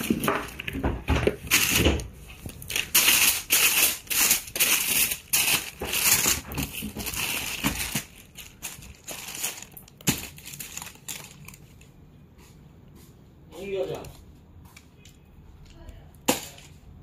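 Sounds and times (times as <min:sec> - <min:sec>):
tissue paper and plastic crinkling: 0:00.0 - 0:12.3.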